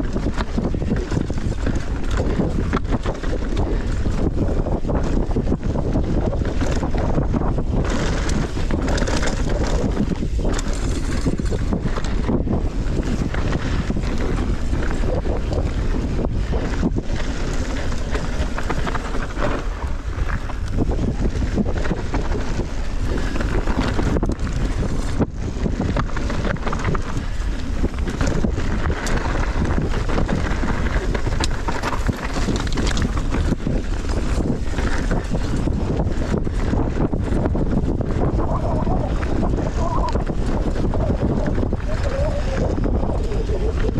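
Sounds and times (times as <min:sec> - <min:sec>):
bike rolling over trail: 0:00.0 - 0:43.9
wind rushing over microphone: 0:00.0 - 0:43.9.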